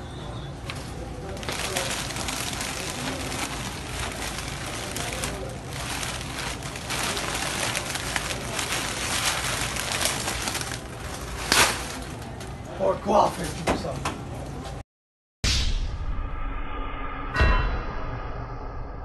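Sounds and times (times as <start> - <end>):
supermarket background hiss: 0.0 - 14.0.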